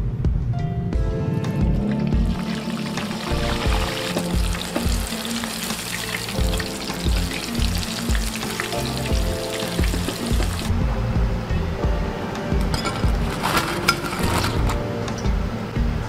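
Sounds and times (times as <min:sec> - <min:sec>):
background music with beat: 0:00.0 - 0:16.0
sausages sizzling in hot oil: 0:02.3 - 0:10.7.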